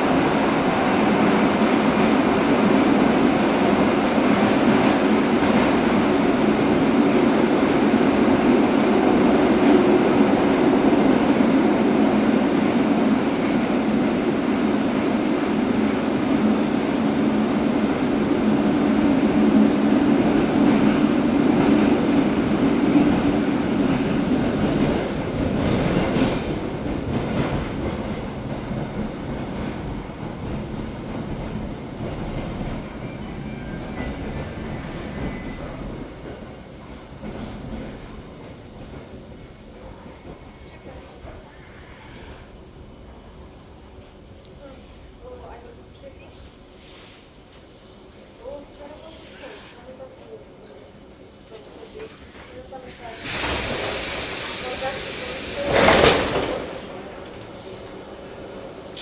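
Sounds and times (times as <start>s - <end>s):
train wheels rumbling on rails: 0.0s - 44.2s, 50.9s - 59.0s.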